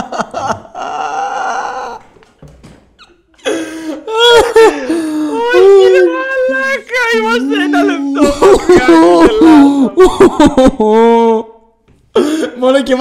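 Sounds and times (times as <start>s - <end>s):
men laughing hard: 0.0s - 2.0s, 3.4s - 6.1s, 7.2s - 11.4s.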